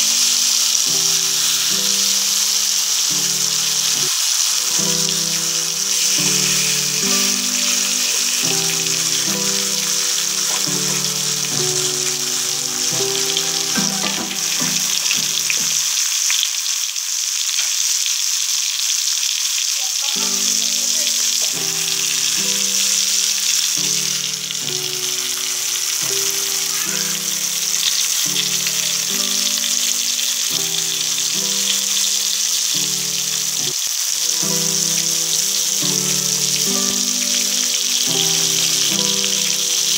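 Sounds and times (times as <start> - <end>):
background music: 0.0 - 15.8, 20.1 - 39.9
fish sizzling in hot oil: 0.0 - 39.9.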